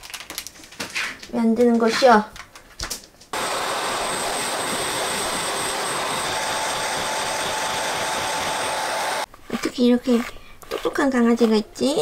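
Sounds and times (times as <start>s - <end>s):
electric blower rushing air: 3.4s - 9.3s
thin high whine: 3.4s - 9.3s.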